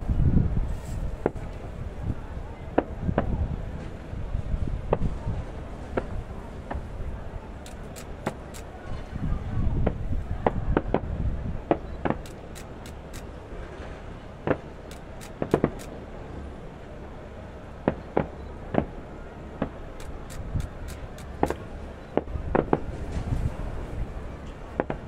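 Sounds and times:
fireworks bangs and crackles: 0:01.0 - 0:01.7, 0:02.7 - 0:09.1, 0:09.8 - 0:16.0, 0:17.8 - 0:19.0, 0:19.6 - 0:25.0.

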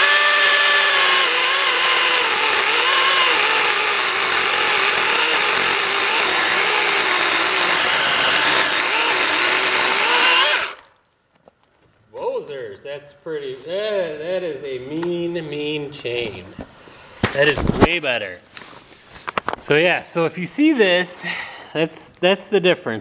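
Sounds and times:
electric chainsaw cutting log: 0:00.0 - 0:10.9.

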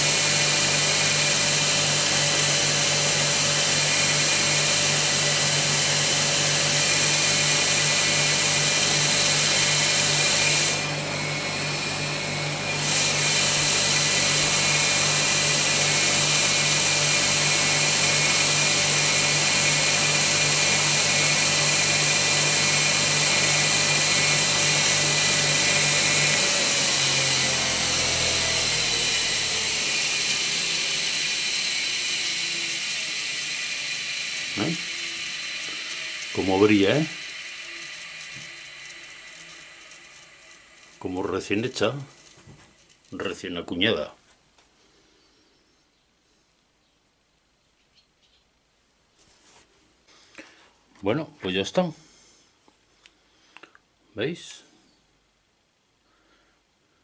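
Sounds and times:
electric motor humming: 0:00.0 - 0:43.4
motor winding down: 0:00.0 - 0:43.5.

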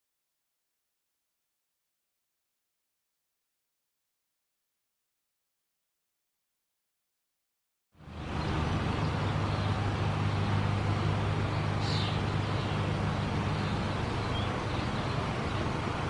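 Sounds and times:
distant road traffic hum: 0:08.0 - 0:16.0.

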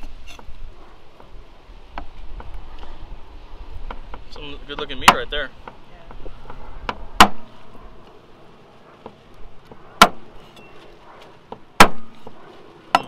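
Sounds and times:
cleaver chopping meat on wood: 0:04.8 - 0:05.8, 0:06.9 - 0:07.5, 0:11.5 - 0:12.2.

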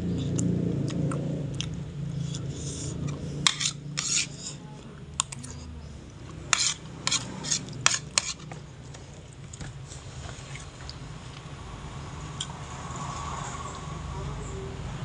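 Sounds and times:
man eating rice by hand: 0:00.2 - 0:11.5.

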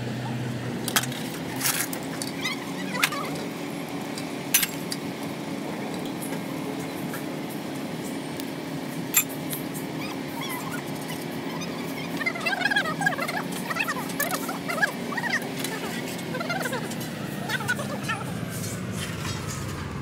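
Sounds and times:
high-pitched wavering cries: 0:10.0 - 0:18.4.

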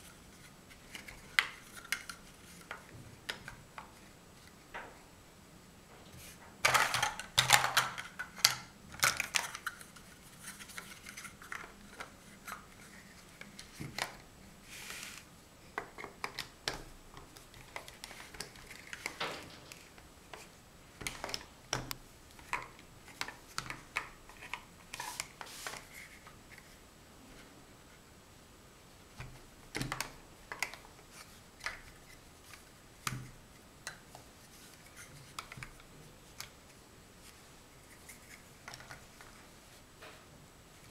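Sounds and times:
plastic blocks clacking: 0:06.6 - 0:12.1.

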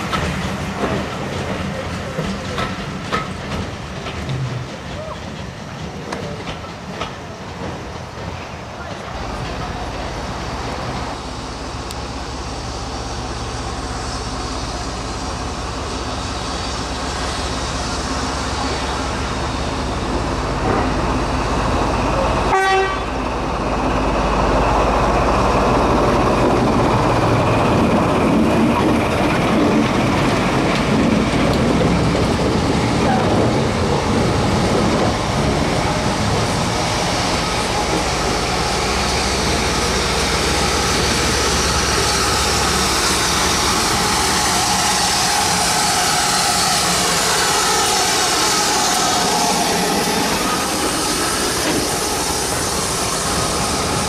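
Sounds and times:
steam locomotive rumbling on rails: 0:00.0 - 0:54.0
train whistle toot: 0:22.5 - 0:23.1.

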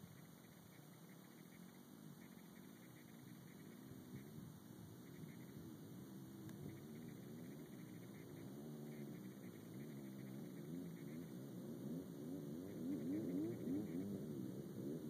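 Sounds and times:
distant off-road engine revving: 0:05.1 - 0:15.0.

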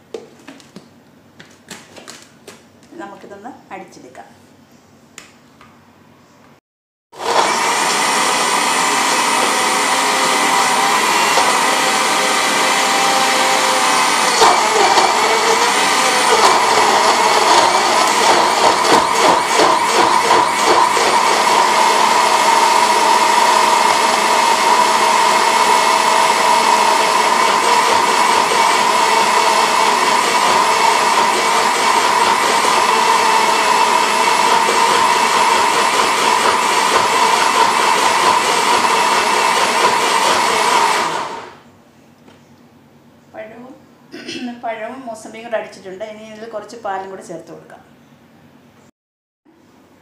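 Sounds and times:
blender motor running: 0:07.1 - 0:41.6.

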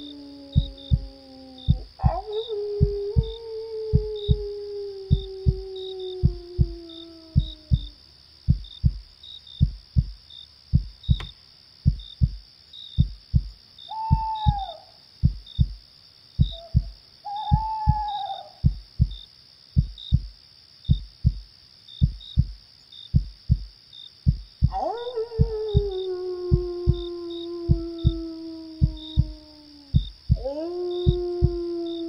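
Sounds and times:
wolf howling: 0:00.0 - 0:08.0, 0:14.0 - 0:14.9, 0:16.5 - 0:18.6, 0:24.7 - 0:32.0
crickets chirring: 0:00.0 - 0:32.0
heartbeat thumping: 0:00.3 - 0:12.4, 0:13.0 - 0:15.8, 0:16.4 - 0:16.9, 0:17.5 - 0:19.2, 0:19.8 - 0:20.3, 0:20.9 - 0:32.0
owl hooting: 0:13.9 - 0:15.0, 0:16.4 - 0:18.8.

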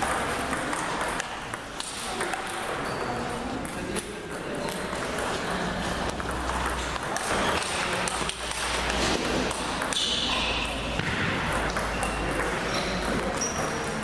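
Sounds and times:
table tennis ball clicking: 0:00.0 - 0:02.8.

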